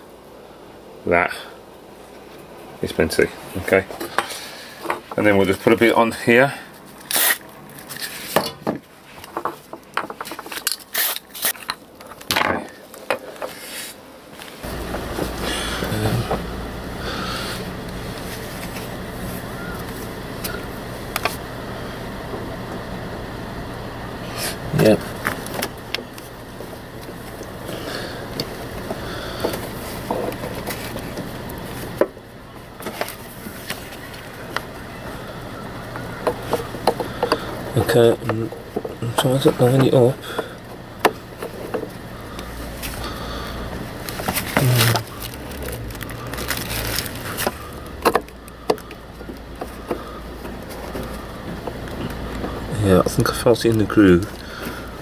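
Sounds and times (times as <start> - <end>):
steady low hum: 0.0 - 55.0
gloved hands rubbing and rustling: 12.9 - 21.5, 40.6 - 48.6.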